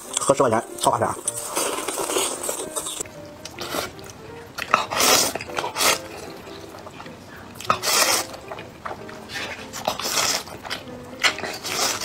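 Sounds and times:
person slurping noodles: 0:04.8 - 0:06.3, 0:07.7 - 0:08.4, 0:09.3 - 0:10.5, 0:11.5 - 0:12.0.

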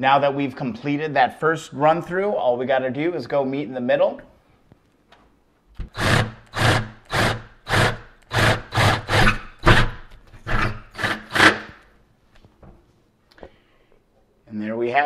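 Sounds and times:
cordless drill cutting metal: 0:05.9 - 0:11.7.

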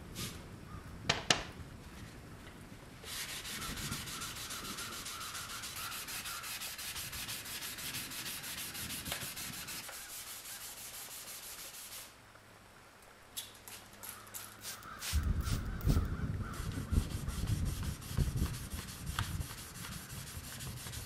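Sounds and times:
sandpaper rubbing on steel: 0:03.1 - 0:12.1, 0:16.5 - 0:21.0.

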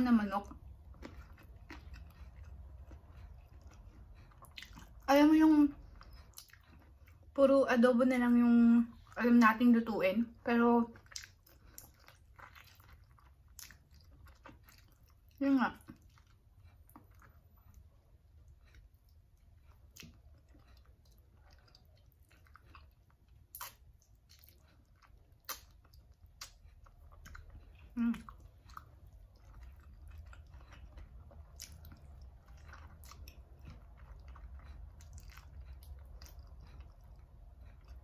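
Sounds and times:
chewing and biting: 0:00.4 - 0:07.4, 0:10.8 - 0:38.0
wet smacks and clicks: 0:23.4 - 0:24.6, 0:25.3 - 0:27.4.

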